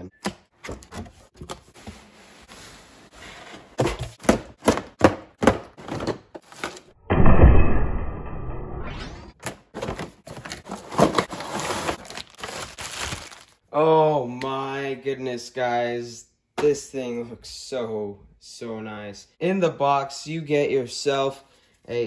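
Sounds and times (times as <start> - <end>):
loud low thud: 7.0 - 8.9.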